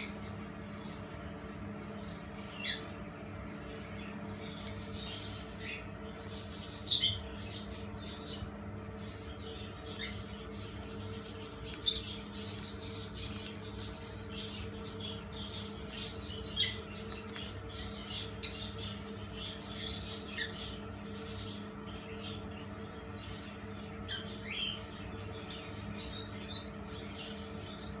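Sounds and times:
steady low hum: 0.0s - 28.0s
lizard biting lettuce: 8.8s - 17.6s.

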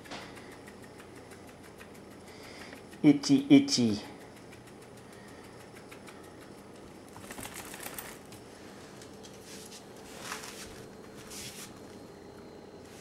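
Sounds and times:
claws ticking on hardwood floor: 0.0s - 9.4s
puppy scratching itself: 9.3s - 11.8s.

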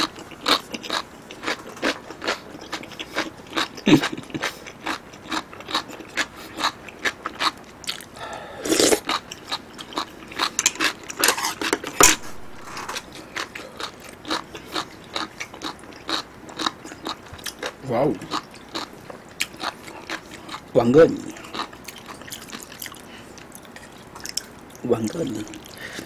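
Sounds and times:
slurp: 8.6s - 9.0s.

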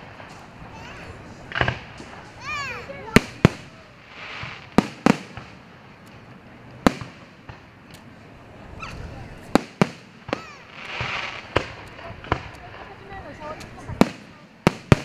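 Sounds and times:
fireworks bursting: 0.0s - 15.0s.

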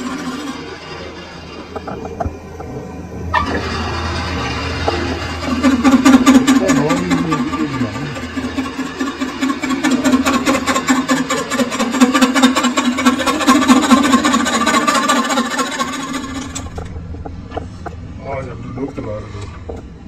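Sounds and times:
lathe hum: 0.0s - 20.0s
cutting tool scraping metal: 3.4s - 16.8s.

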